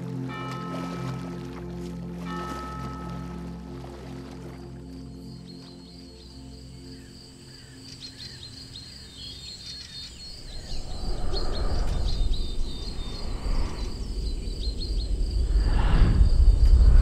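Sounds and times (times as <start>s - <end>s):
deep rushing whoosh: 10.4s - 17.0s.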